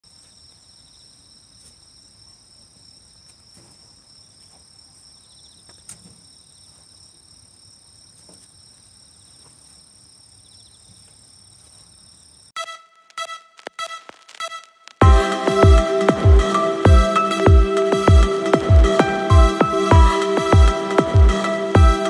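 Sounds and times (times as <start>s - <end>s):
crickets and insects chirring: 0.0s - 12.6s.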